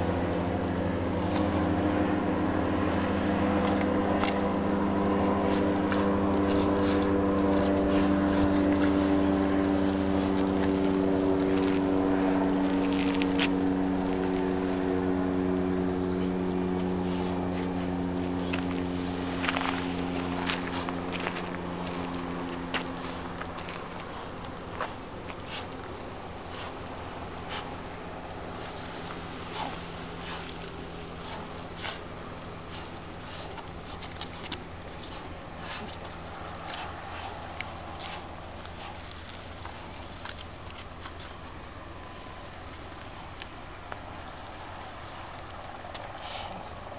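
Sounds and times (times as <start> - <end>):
engine running: 0.0 - 46.9
steady low hum: 0.0 - 46.9
machetes swishing through air: 1.1 - 14.9, 17.0 - 40.0
footwork scuffs on rock: 16.8 - 32.1.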